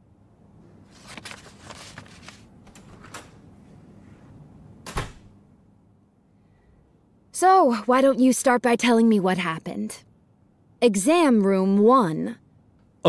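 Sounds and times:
door thudding shut: 0:04.8 - 0:05.3.

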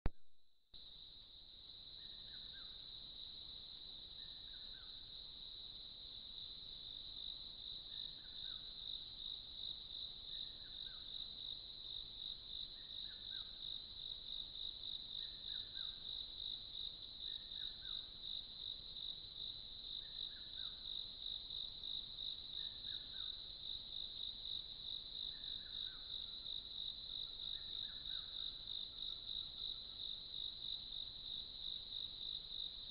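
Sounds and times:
insect chorus shrill drone: 0:01.8 - 0:03.0, 0:17.2 - 0:18.1, 0:25.1 - 0:32.7.

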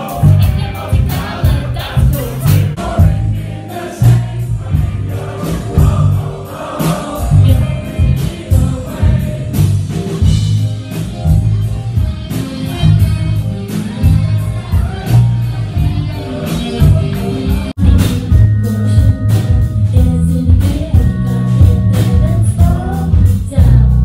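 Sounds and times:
loud live electropop music: 0:00.0 - 0:02.9.

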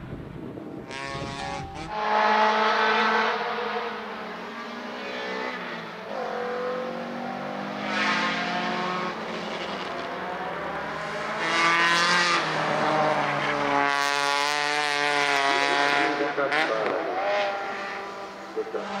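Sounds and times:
race car engine accelerating hard: 0:00.8 - 0:19.0.

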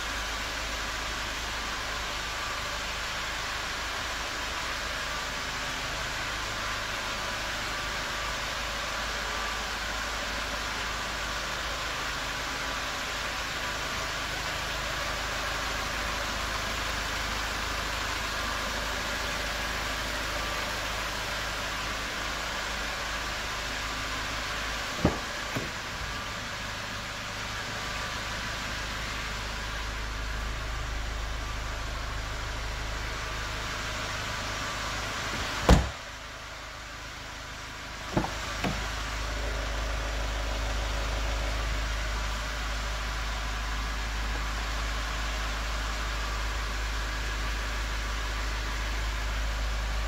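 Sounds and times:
steady low hum: 0:21.2 - 0:50.0
sharp knocks: 0:25.0 - 0:25.8, 0:38.1 - 0:38.8.

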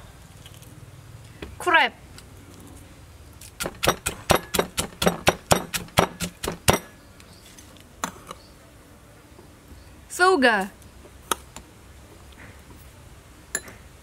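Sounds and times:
wooden pestle pounding in mortar: 0:03.6 - 0:06.9.

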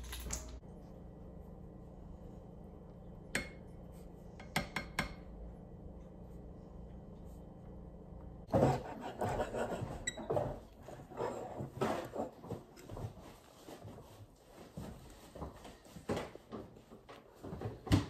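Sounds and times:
faint steady hum: 0:00.0 - 0:11.7.

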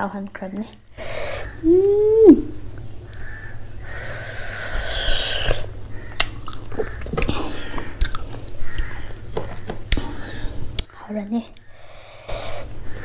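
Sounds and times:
person humming mm: 0:01.1 - 0:02.6
wet chewing clicks and smacks: 0:06.0 - 0:10.9
breathy huff of air: 0:11.7 - 0:13.0.

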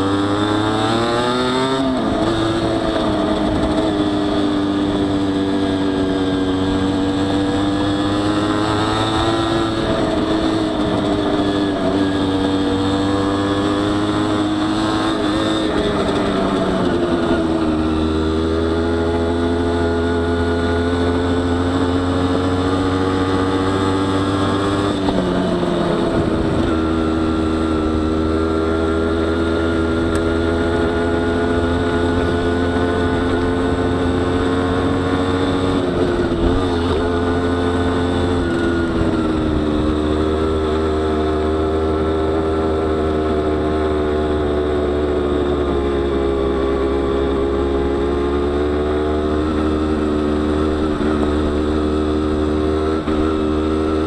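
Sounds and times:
two-stroke engine running: 0:01.8 - 0:54.0.

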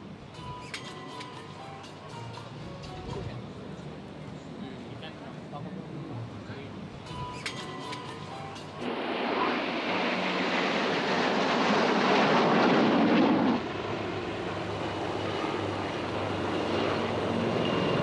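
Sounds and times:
military jets flying over: 0:07.6 - 0:18.0
aircraft engine drone: 0:07.7 - 0:18.0.

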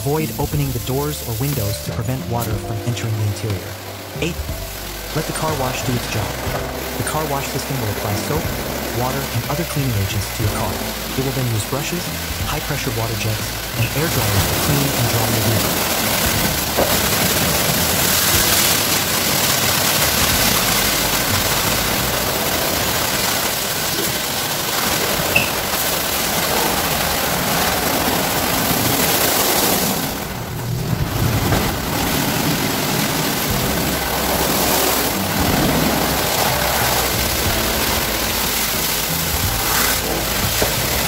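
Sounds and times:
water spray hissing: 0:00.0 - 0:30.2, 0:31.2 - 0:41.0
rotating brushes scrubbing car: 0:13.4 - 0:41.0.

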